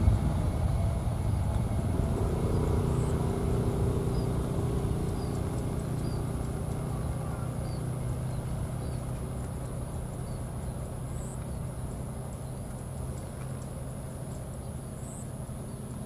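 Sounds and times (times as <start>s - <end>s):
distant jet engines rumbling: 0.0s - 16.0s
bird chirping faintly: 2.1s - 16.0s.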